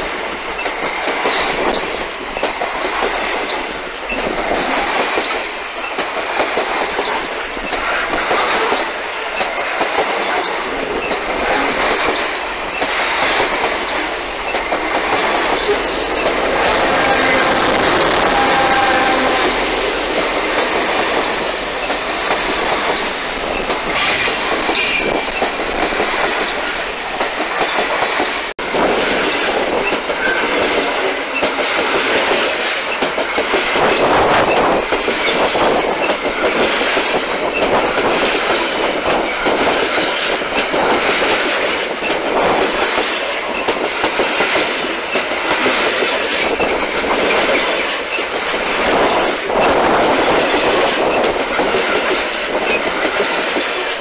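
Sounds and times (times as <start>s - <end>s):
train wheels clattering on rails: 0.0s - 54.0s
high wheel squeal: 24.0s - 25.5s.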